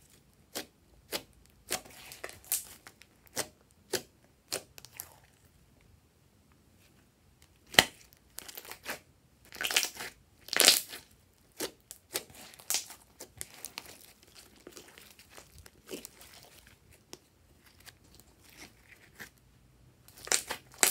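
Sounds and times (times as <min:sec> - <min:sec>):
slime popping and crackling: 0:00.5 - 0:04.7, 0:07.7 - 0:11.0, 0:11.6 - 0:16.7, 0:20.1 - 0:20.9.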